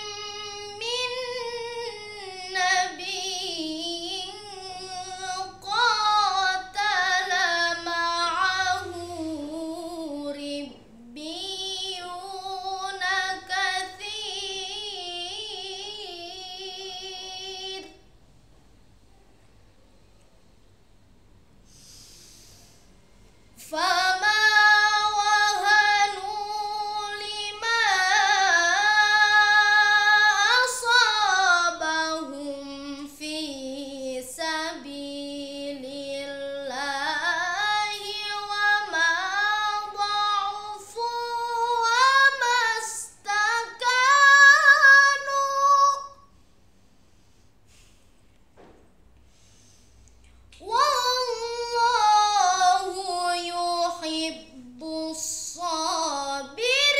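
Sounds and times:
boy chanting melodic recitation: 0.0 - 18.0, 23.6 - 46.2, 50.6 - 56.9
short breath: 21.6 - 23.3, 46.3 - 48.4, 49.2 - 50.6.

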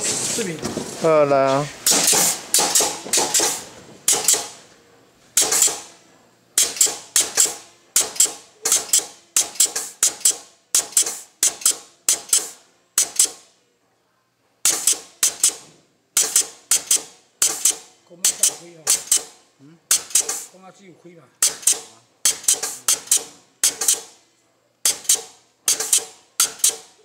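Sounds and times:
pneumatic crimping machine clacks: 1.8 - 4.6, 5.3 - 6.0, 6.6 - 13.5, 14.6 - 20.6, 21.4 - 24.2, 24.8 - 27.0.

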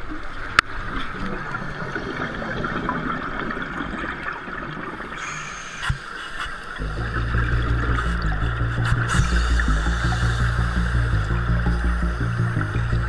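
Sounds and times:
underwater air bubbles hissing: 4.8 - 13.0
background music: 6.8 - 13.0.

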